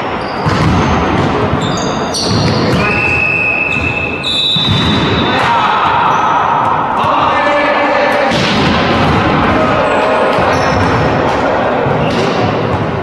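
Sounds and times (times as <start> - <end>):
sneakers squeaking on floor: 0.0 - 5.4, 9.8 - 11.3, 11.9 - 13.0
volleyball hits: 0.4 - 7.2, 8.2 - 13.0
players shouting: 2.1 - 12.4.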